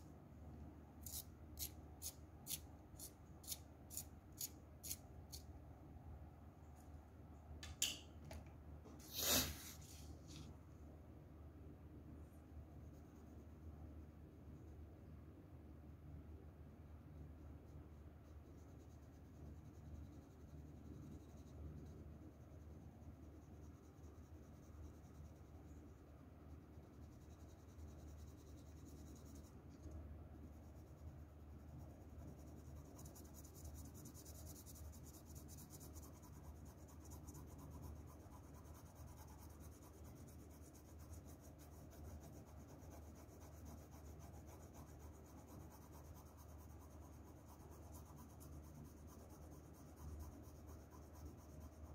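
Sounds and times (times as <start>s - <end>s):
low steady hum: 0.0s - 51.9s
pencil scratching on paper: 17.7s - 29.7s, 30.4s - 51.9s.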